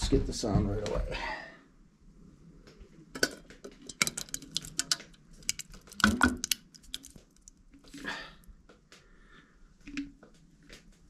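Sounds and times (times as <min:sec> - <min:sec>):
container knocking against metal pot: 0:03.2 - 0:06.6
soft wet plops: 0:03.9 - 0:08.1.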